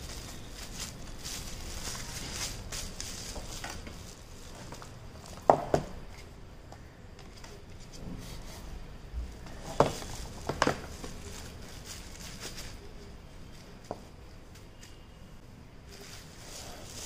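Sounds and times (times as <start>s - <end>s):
paper and bubble wrap rustling: 0.0s - 5.5s, 7.3s - 15.0s, 15.9s - 17.0s.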